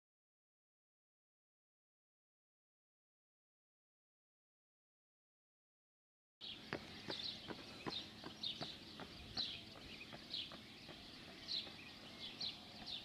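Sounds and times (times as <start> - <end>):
small birds chirping: 6.4 - 13.0.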